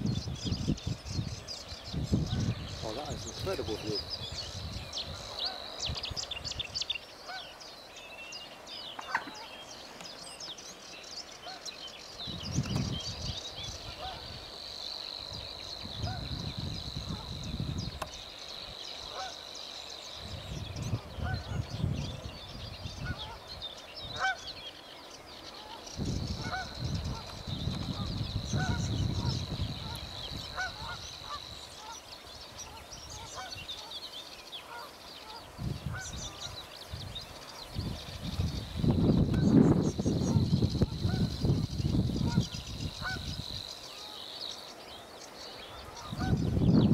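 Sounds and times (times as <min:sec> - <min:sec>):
short bird calls: 0:08.9 - 0:10.2
bird buzzing trill: 0:26.0 - 0:46.9.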